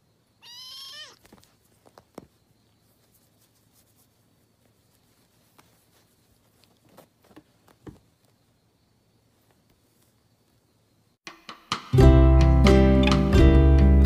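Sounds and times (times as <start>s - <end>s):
kitten scuffing on rug: 0.8s - 8.4s.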